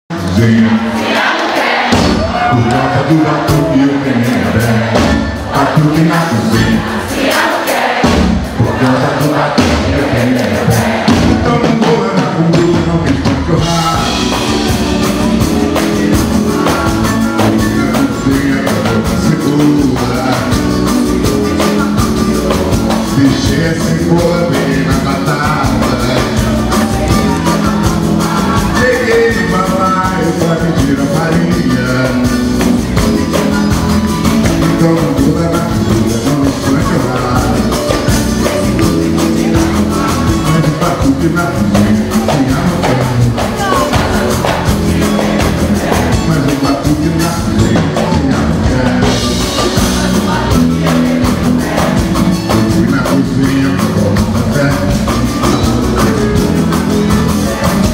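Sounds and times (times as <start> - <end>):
man singing into a microphone: 0.1 - 1.0, 2.1 - 7.2, 8.4 - 57.9
samba band playing: 0.1 - 57.9.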